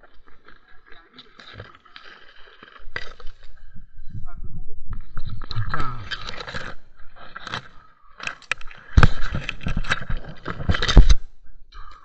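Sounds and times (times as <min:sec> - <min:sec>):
branches scraping and snapping: 0:07.4 - 0:11.2.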